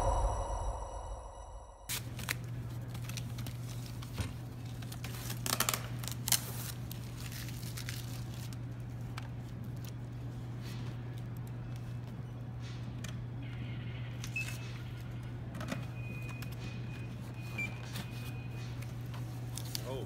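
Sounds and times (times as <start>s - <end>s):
steady low hum: 0.0s - 3.5s
packaging rustling and tearing: 1.9s - 10.0s.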